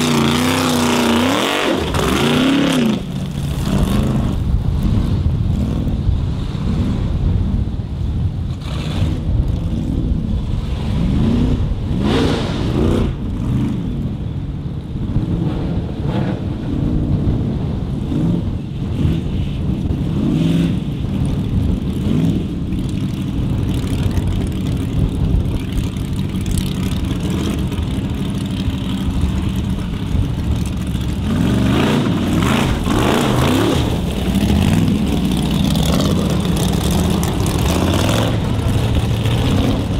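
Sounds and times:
car engine revving hard: 0.0s - 4.3s, 31.3s - 39.8s.

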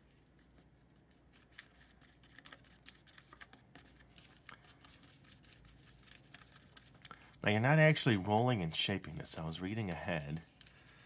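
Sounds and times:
plastic spoon stirring mix: 0.0s - 8.4s, 9.1s - 11.0s.

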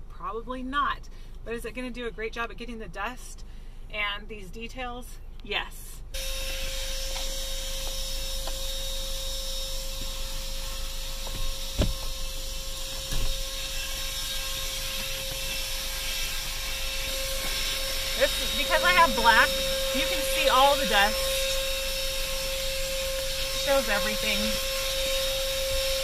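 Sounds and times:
handheld vacuum running: 6.2s - 26.0s.

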